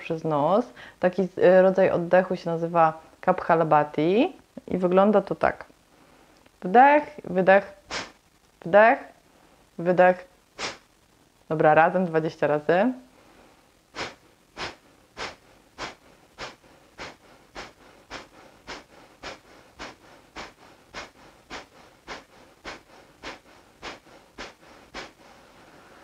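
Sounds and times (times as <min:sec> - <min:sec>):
sharp nasal exhalations: 0:07.9 - 0:08.2, 0:10.6 - 0:10.9, 0:13.2 - 0:26.0.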